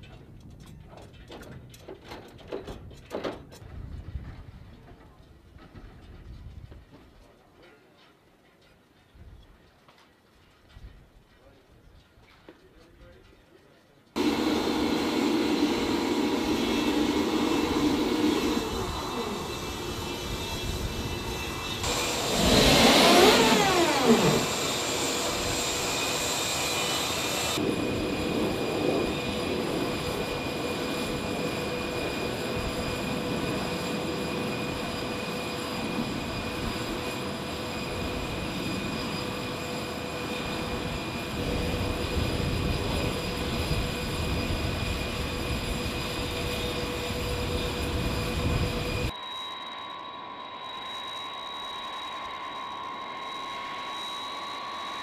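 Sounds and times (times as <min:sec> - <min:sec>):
jet engines whining: 0:14.2 - 0:55.0.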